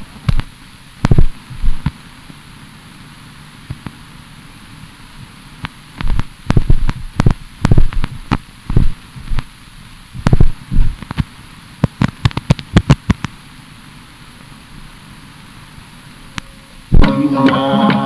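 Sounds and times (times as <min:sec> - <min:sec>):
sharp knocks and thumps: 0:00.2 - 0:02.0, 0:06.0 - 0:09.5, 0:10.2 - 0:13.3.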